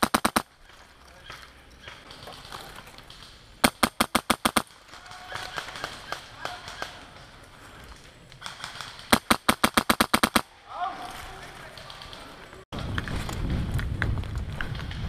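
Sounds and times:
airsoft gun rapid burst: 0.0 - 0.4, 3.6 - 4.7, 8.4 - 10.4
distant airsoft shots: 0.0 - 0.5, 3.6 - 7.0, 8.4 - 10.5.

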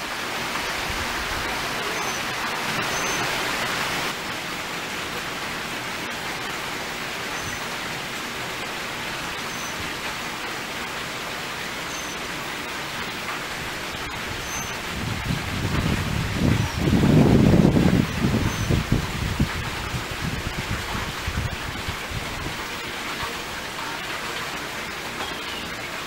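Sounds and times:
rain falling: 0.0 - 26.0
faint short high chirps: 2.8 - 3.3, 7.4 - 7.7, 11.9 - 12.2, 14.5 - 14.8, 25.2 - 25.8.

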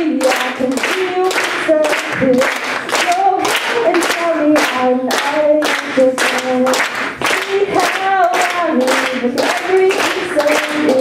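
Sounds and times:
woman singing into a microphone: 0.0 - 11.0
hand claps: 0.2 - 11.0.

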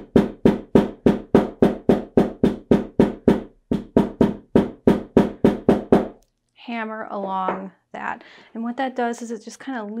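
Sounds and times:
hammer tapping on fabric seam: 0.0 - 6.2.

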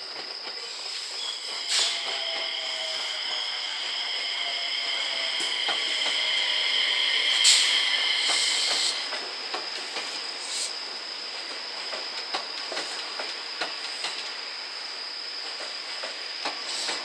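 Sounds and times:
electric train passing: 0.0 - 17.0
loud hissing: 0.6 - 11.2, 15.8 - 17.0.

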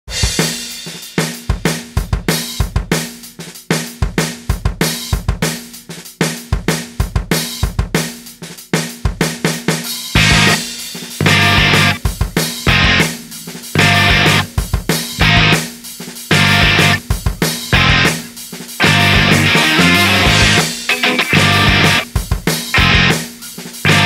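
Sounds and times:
rock drum kit beat: 0.1 - 24.0
bass guitar: 10.2 - 15.7, 16.3 - 24.0
distorted electric guitar: 10.2 - 15.7, 16.3 - 24.0.

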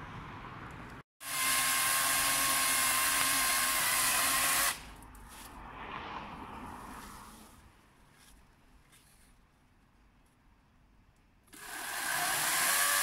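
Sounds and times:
electric chainsaw cutting branch: 1.2 - 4.9, 11.5 - 13.0.

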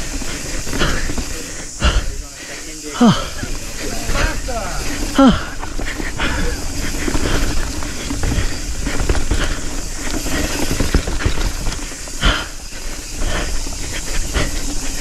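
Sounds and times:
bike knocks and rattles: 0.0 - 2.3, 3.0 - 15.0
wind and tyre noise: 0.0 - 15.0.

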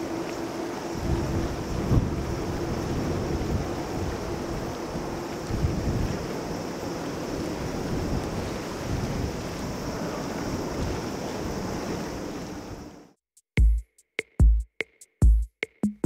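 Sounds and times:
jet engine rumble: 0.0 - 13.1
drum machine beat: 13.4 - 16.0.

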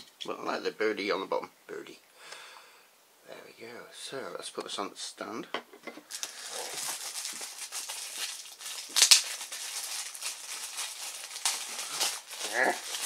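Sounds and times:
plastic packaging crinkling: 6.1 - 13.0.

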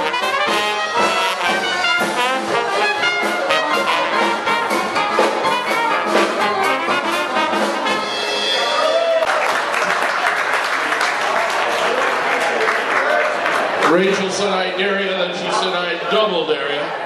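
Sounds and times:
dixieland jazz band: 0.0 - 8.8
trombone melody: 0.0 - 8.8.

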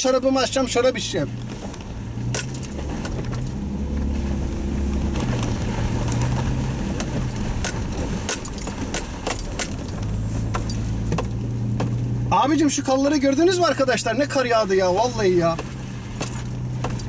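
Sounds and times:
car engine hum and road noise: 0.0 - 17.0
light clicks and rattles: 1.4 - 4.3, 5.0 - 12.2, 15.4 - 17.0.

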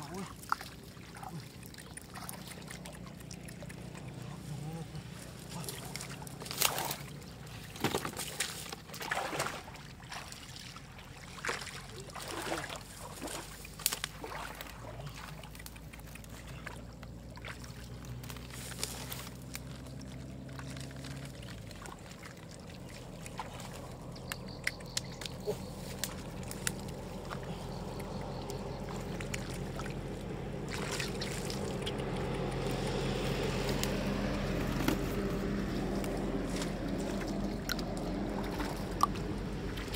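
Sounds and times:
low steady hum: 0.0 - 39.9
splashing in muddy water: 0.0 - 39.9.

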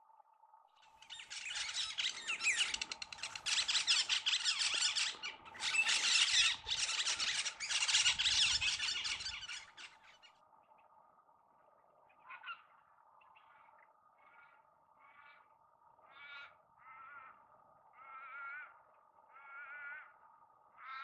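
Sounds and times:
chorus of bird chirps: 0.8 - 10.9, 12.0 - 15.5.

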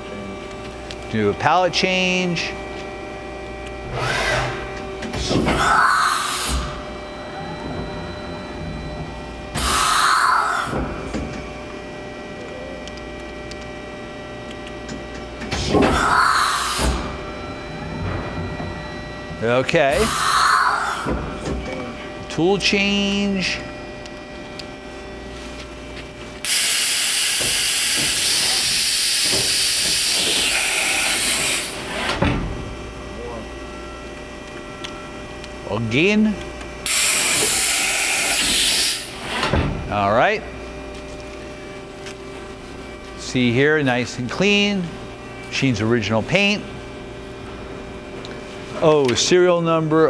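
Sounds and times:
machine humming: 0.0 - 50.0
machine clunk: 7.4 - 9.8, 16.7 - 19.7.

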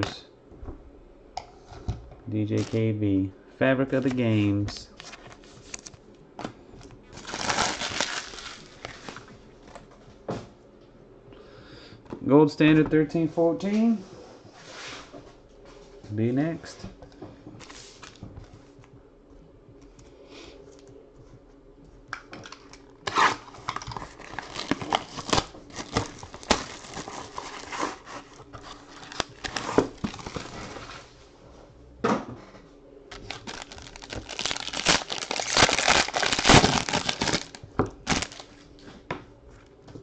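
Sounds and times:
foil pack tearing and crinkling: 7.1 - 9.2, 23.1 - 30.9, 33.1 - 38.6
plastic wrap tearing and crinkling: 7.1 - 9.3, 23.1 - 30.9, 33.1 - 38.6.

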